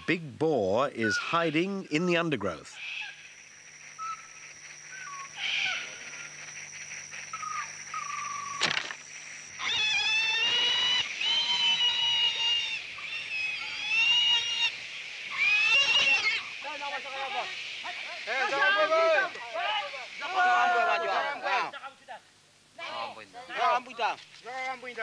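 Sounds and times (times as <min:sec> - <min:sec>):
faint whistled calls: 0:00.0 - 0:01.8, 0:02.8 - 0:21.7
wild boar squealing: 0:00.9 - 0:01.8, 0:02.8 - 0:03.3, 0:04.0 - 0:06.3, 0:07.3 - 0:08.8, 0:09.5 - 0:17.5.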